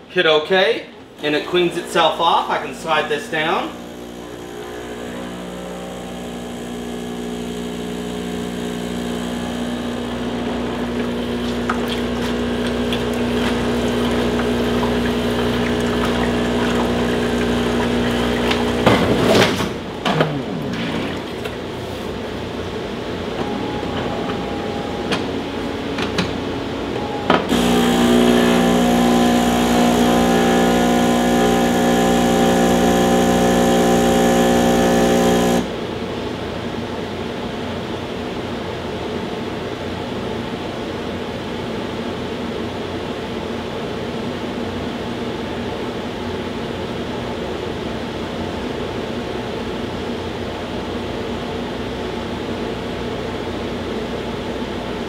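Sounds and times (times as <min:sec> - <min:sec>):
espresso machine pump humming: 0:01.2 - 0:19.5, 0:27.3 - 0:35.8.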